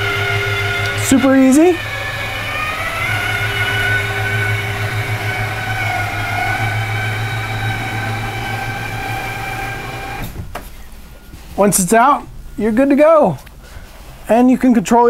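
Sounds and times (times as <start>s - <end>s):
electric motor drone with whine: 0.0s - 10.4s.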